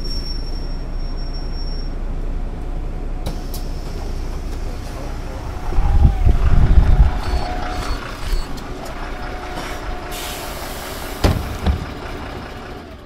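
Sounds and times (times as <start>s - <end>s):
bus engine idling: 0.0s - 13.0s
compressed air hiss: 9.6s - 11.4s.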